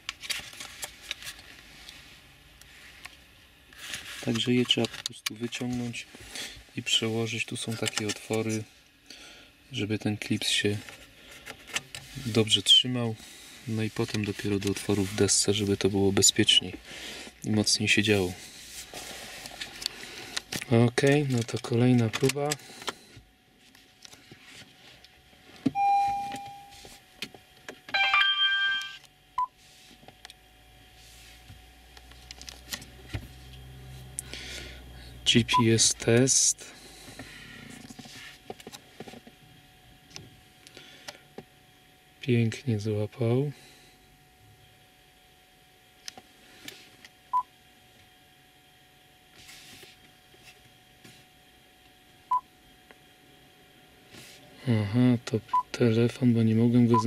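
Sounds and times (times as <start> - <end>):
low steady hum: 0.0 - 57.0
electronic dashboard beeps: 25.7 - 26.8, 28.0 - 29.5, 35.4 - 35.8
multi-tone chime: 25.8 - 26.8, 28.0 - 29.0.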